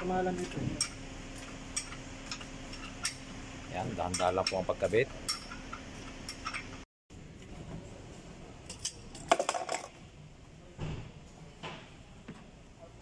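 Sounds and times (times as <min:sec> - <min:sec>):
metal tools clinking: 0:04.0 - 0:06.8.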